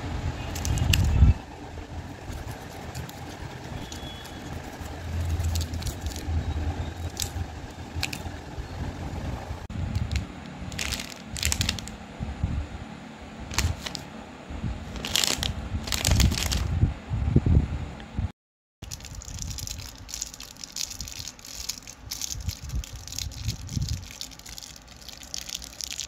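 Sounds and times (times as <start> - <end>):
low rumble of hands handling: 2.0 - 6.4, 9.8 - 12.0, 13.4 - 14.1, 14.7 - 16.8
plastic wrappers crinkling: 2.3 - 6.3, 7.0 - 8.2, 9.9 - 12.0, 13.5 - 14.1, 14.9 - 16.7, 18.8 - 26.0.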